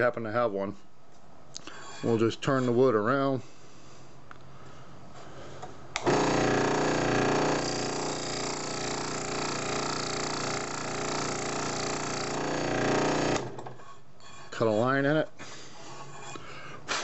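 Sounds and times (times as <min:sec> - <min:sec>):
scroll saw running: 0:06.0 - 0:13.6.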